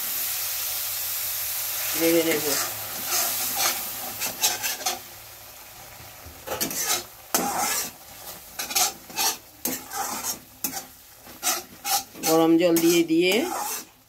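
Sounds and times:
spice paste sizzling: 0.0s - 14.0s
metal spatula scraping pan: 2.3s - 5.0s, 6.5s - 14.0s.

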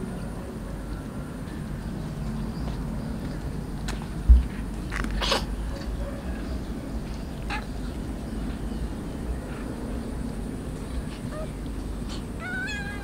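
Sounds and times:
steady low rumble: 0.0s - 13.0s
faint kitten mewing: 12.1s - 13.0s.

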